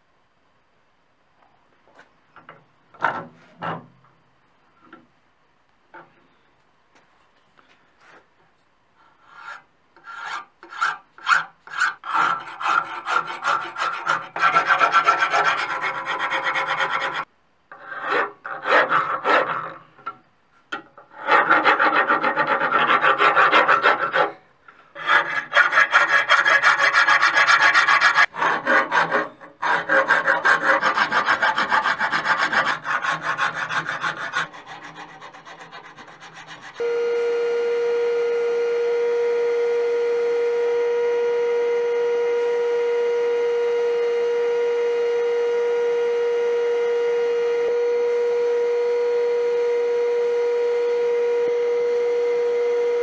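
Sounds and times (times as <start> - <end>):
file rasping on metal: 9.2 - 19.9, 21.0 - 24.4, 25.0 - 36.9.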